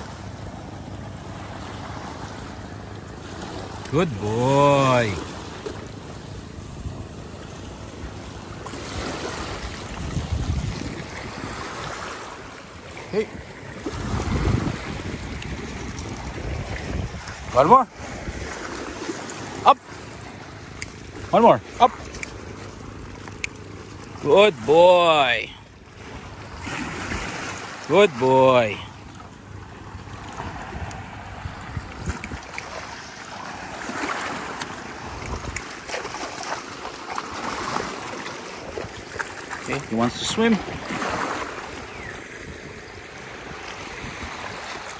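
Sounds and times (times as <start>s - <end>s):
waves washing over pebbles: 0.0s - 44.9s
wind buffeting microphone: 8.9s - 12.5s, 13.3s - 18.8s, 30.3s - 32.9s.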